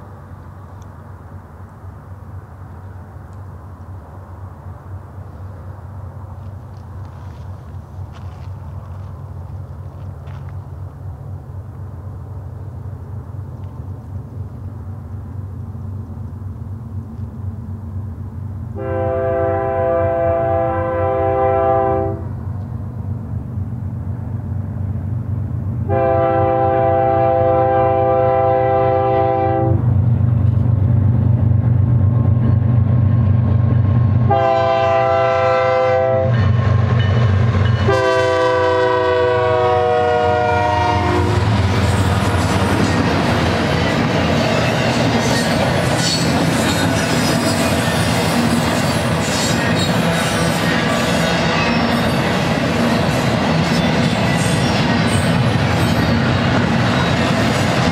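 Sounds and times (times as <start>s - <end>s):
train wheels on rails: 0.0s - 57.9s
locomotive air horn blasts: 18.8s - 22.3s, 25.9s - 29.8s, 34.3s - 36.4s, 37.9s - 41.6s.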